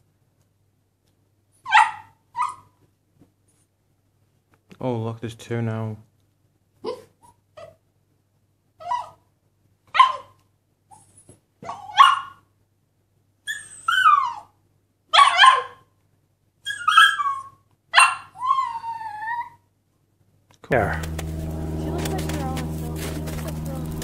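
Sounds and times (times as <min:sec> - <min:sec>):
puppy yipping: 0:01.7 - 0:02.8, 0:06.8 - 0:07.8, 0:08.8 - 0:09.2, 0:09.9 - 0:12.4, 0:13.4 - 0:15.9, 0:16.6 - 0:19.6.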